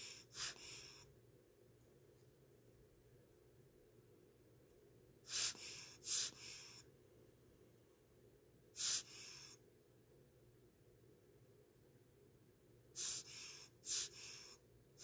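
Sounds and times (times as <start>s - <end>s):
air blower puffs: 0.0s - 1.0s, 5.2s - 6.8s, 8.8s - 9.4s, 13.0s - 14.5s.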